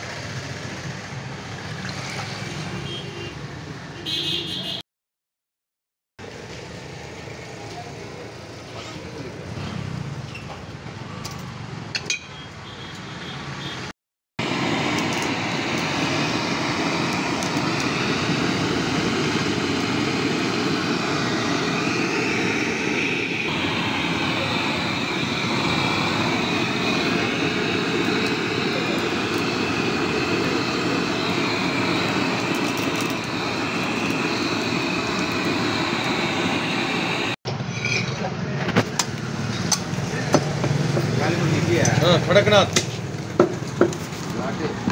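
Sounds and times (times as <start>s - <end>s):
street background noise: 0.0s - 4.8s, 6.2s - 44.9s
gas blowtorch rushing: 14.4s - 37.4s, 38.7s - 44.9s.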